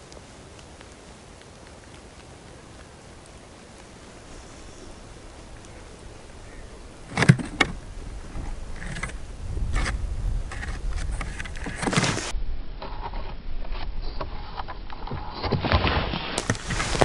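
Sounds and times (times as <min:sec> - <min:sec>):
low rumble: 0:03.8 - 0:14.0
clicks and rustling: 0:05.2 - 0:17.0.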